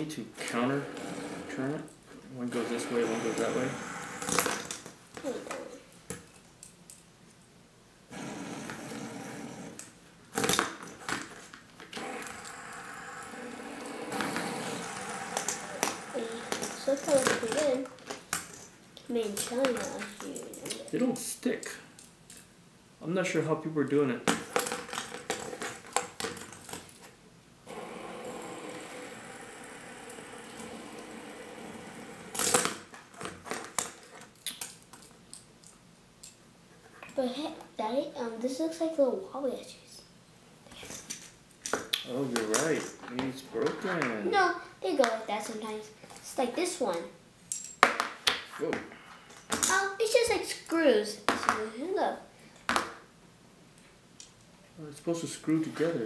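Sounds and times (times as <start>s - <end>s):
spinners whirring: 2.5s - 5.5s, 11.9s - 18.0s, 27.6s - 33.0s
spinner whirring: 27.6s - 32.9s.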